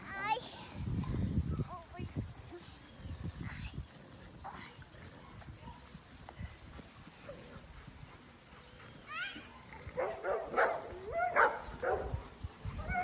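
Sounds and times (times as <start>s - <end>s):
puppies yipping and whining: 8.5s - 10.3s, 12.4s - 13.0s.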